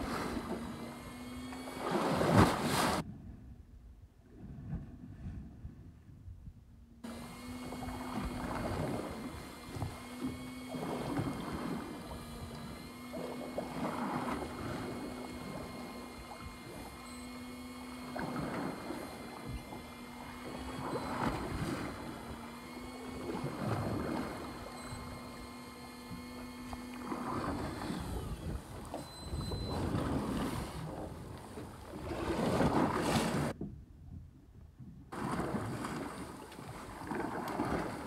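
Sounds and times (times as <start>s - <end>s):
steady motor hum: 0.0s - 3.4s, 4.3s - 34.2s, 34.8s - 38.0s
water slapping against boat hull: 7.5s - 33.8s, 35.2s - 38.0s.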